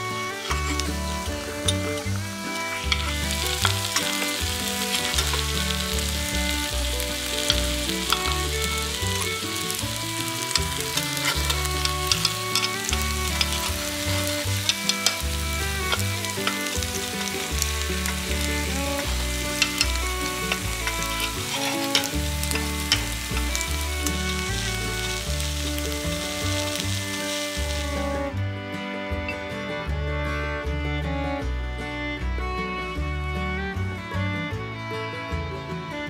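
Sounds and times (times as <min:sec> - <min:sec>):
background music: 0:00.0 - 0:36.0
batter sizzling in hot pan: 0:00.4 - 0:28.2.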